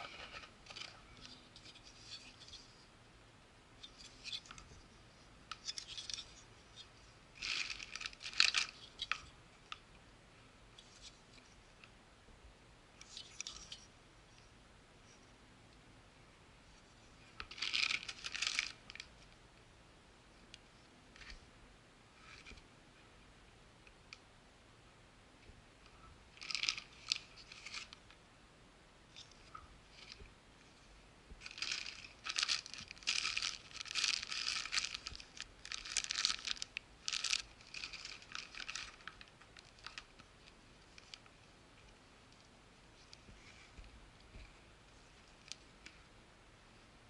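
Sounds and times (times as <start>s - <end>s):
plastic bags crinkling: 7.4s - 9.2s, 17.5s - 19.1s, 26.4s - 28.0s, 31.4s - 40.3s.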